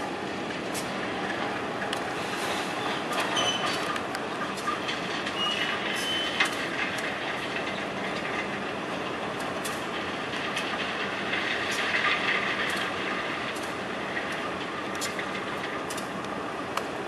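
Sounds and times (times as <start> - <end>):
wheel or brake squeal: 2.5 - 3.8, 5.4 - 6.5.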